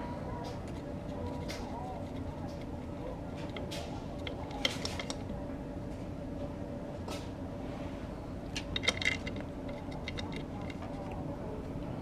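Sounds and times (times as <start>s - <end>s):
steady low hum: 0.0s - 12.0s
metal tools clicking and clinking: 8.6s - 10.9s.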